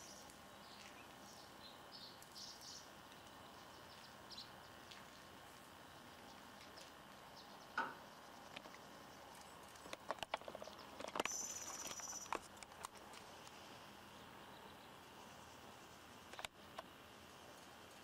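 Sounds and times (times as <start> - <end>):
thin high whine: 11.0 - 12.5.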